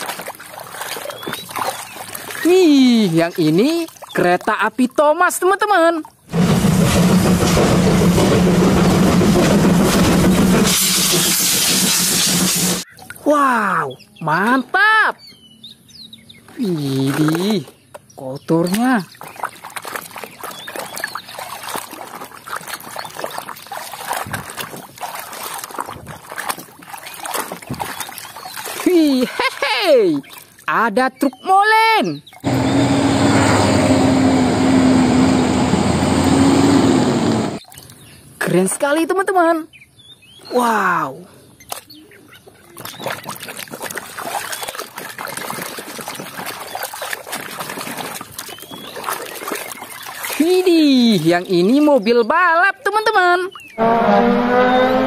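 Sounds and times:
water dripping: 0.0s - 5.4s, 16.5s - 31.4s, 42.7s - 52.2s
water sloshing in a tub: 0.0s - 6.3s, 16.4s - 31.6s, 41.6s - 53.8s.

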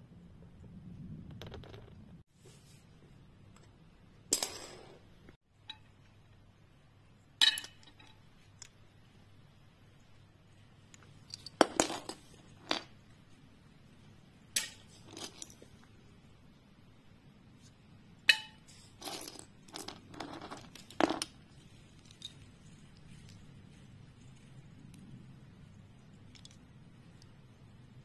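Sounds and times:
plastic toys clicking and clinking: 19.0s - 23.5s, 26.2s - 27.3s.

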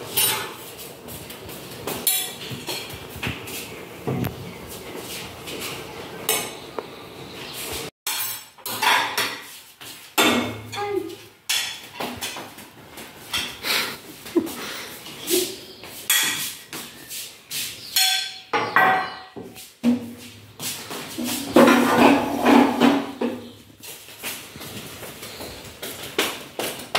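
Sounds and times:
glasses and plates clinking on stone: 8.1s - 9.2s.

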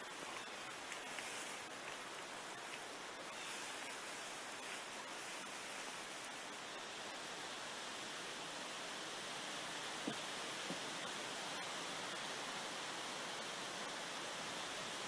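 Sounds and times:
leaves and plastic tarp rustling: 0.0s - 6.8s
steady hiss: 0.0s - 15.0s.

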